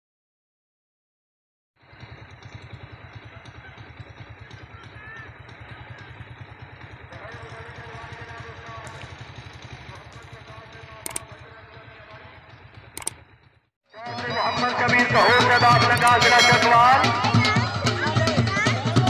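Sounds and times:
small engine running: 1.8s - 19.0s
sharp click: 11.0s - 11.3s, 13.0s - 13.2s.

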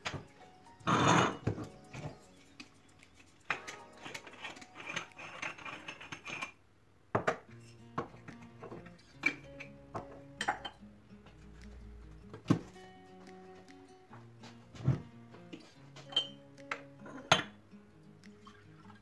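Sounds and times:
background music: 0.0s - 6.4s, 7.5s - 19.0s
moka pot rasping unscrewed: 3.5s - 6.6s.

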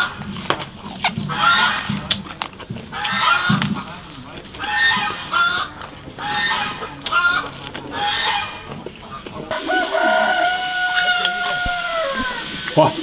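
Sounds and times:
poultry calling: 0.9s - 2.1s, 2.9s - 13.0s
rooster crowing: 9.5s - 12.7s.

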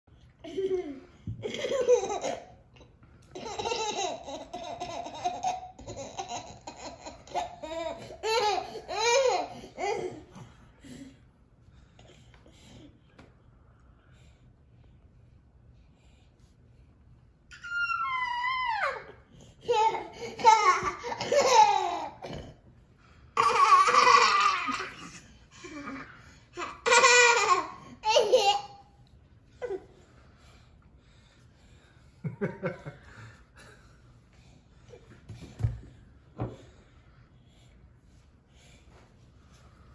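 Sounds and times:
toddler laughing: 0.4s - 2.6s, 3.3s - 10.5s, 17.6s - 22.5s, 23.4s - 28.9s.

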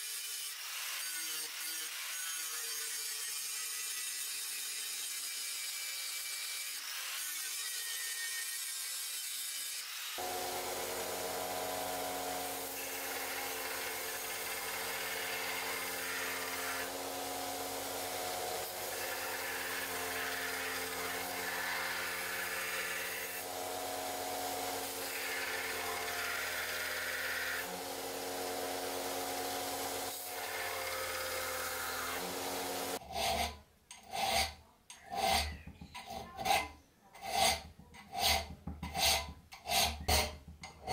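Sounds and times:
file rasping on steel: 0.0s - 24.0s, 29.9s - 40.9s
angle grinder grinding steel: 0.0s - 40.9s
blade grinding on belt: 0.1s - 40.1s
belt grinder motor hum: 10.2s - 33.0s.

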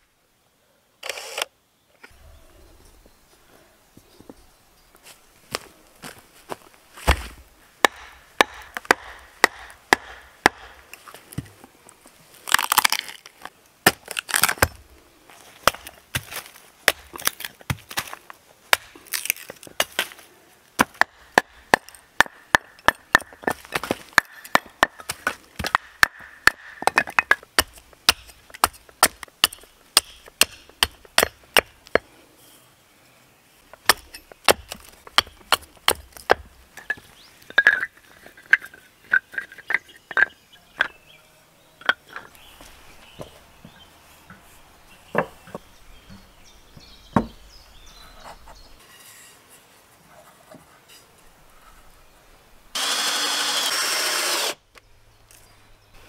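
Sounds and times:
hatchet knocking into wood: 7.1s - 10.8s
wood cracking and splintering: 12.4s - 14.9s, 15.6s - 20.2s, 33.7s - 37.8s.

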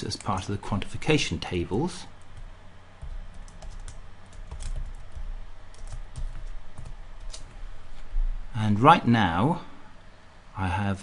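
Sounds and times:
typing on computer keyboard: 2.4s - 7.6s.

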